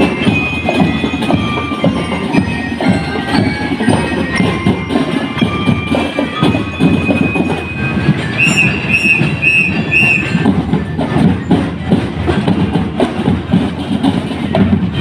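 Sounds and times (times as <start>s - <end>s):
snare and bass drums: 0.0s - 15.0s
held high note: 6.4s - 10.4s
short high toots: 8.3s - 10.4s.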